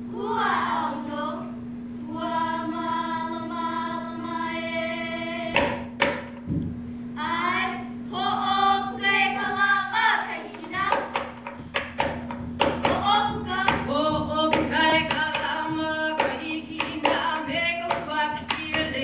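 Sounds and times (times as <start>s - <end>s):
gourd drum strikes: 5.5s - 6.8s, 10.4s - 19.0s.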